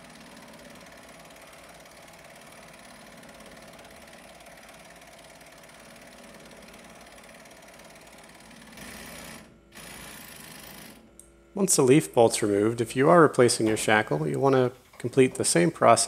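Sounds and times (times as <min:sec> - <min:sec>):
mechanical engine hum: 0:00.0 - 0:09.8.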